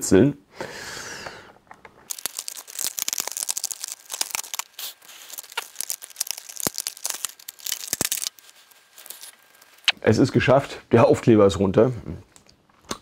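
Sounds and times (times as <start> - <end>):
sticker peeling off crackling: 2.1 - 9.9.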